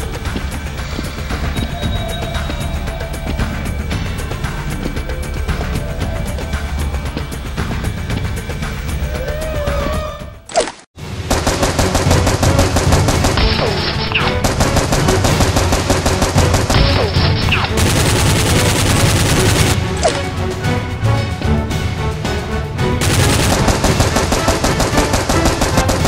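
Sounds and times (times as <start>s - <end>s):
descending whistles: 0.6s - 8.0s
rapid automatic gunfire: 11.3s - 19.8s, 23.0s - 26.0s.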